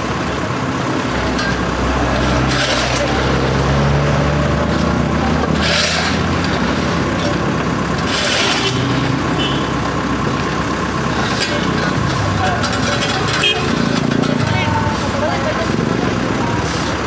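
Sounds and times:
street noise: 0.0 - 17.0
truck engine running: 0.0 - 17.0
shovels scraping concrete rubble: 0.4 - 9.4, 11.0 - 17.0.

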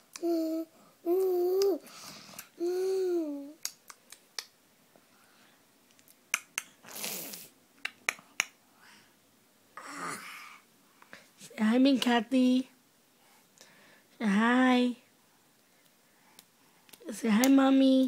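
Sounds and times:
toddler sucking fingers: 0.1 - 1.8
toddler humming: 0.2 - 1.8, 2.6 - 3.6.

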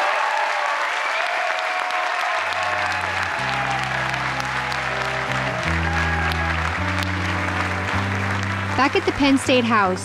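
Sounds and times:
audience applauding: 0.0 - 10.0
music with low bass notes: 3.5 - 10.0.

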